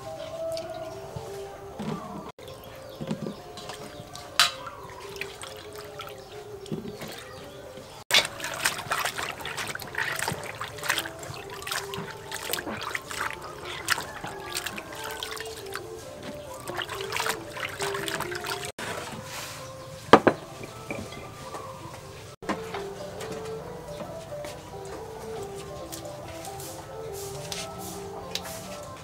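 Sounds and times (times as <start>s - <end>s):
dripping water: 2.4s - 18.8s
water splashing in a steel bowl: 2.4s - 18.8s
water streaming off vegetables: 3.1s - 18.8s.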